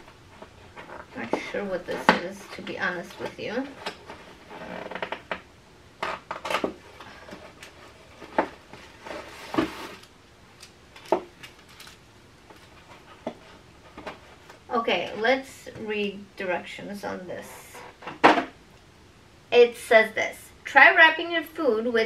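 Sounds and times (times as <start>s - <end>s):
packaging rustling: 6.1s - 14.7s.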